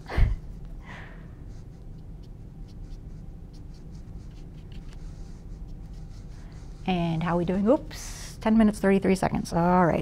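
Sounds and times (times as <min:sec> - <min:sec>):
steady low hum: 0:00.0 - 0:10.0
paintbrush strokes on canvas: 0:01.4 - 0:08.2.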